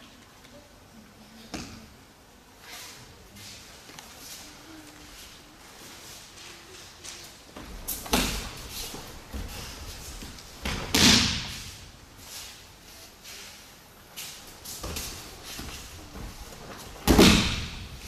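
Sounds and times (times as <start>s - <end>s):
body slapping onto mats: 14.8s - 18.0s.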